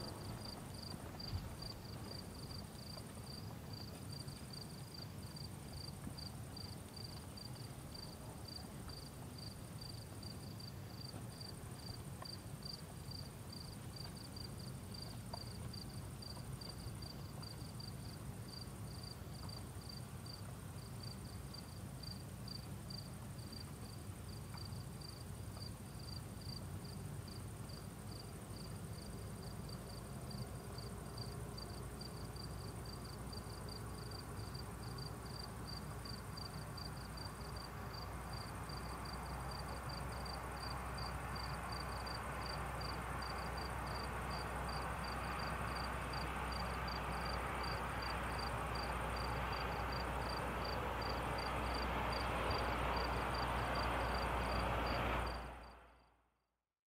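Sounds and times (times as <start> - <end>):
cricket chirping: 0.0 - 56.0
high insect trill: 25.9 - 55.8.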